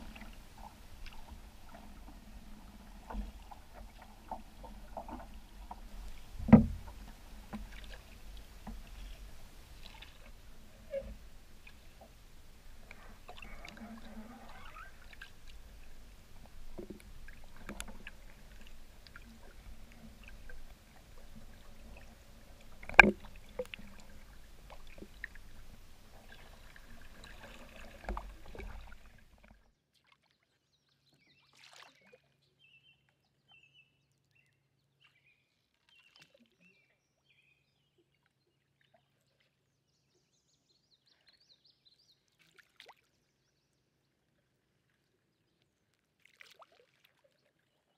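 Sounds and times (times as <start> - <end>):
paddle water sloshing: 0.0 - 30.2, 31.4 - 33.1, 44.4 - 47.8
canoe knocks: 3.0 - 8.0, 22.8 - 24.0.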